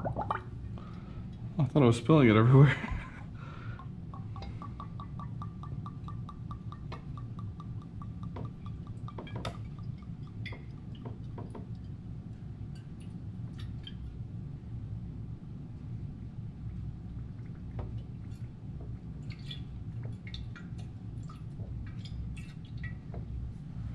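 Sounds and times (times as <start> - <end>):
liquid glugging from a bottle: 0.0 - 0.8, 3.8 - 12.0
liquid dripping: 0.0 - 1.5, 3.0 - 14.4, 16.2 - 23.9.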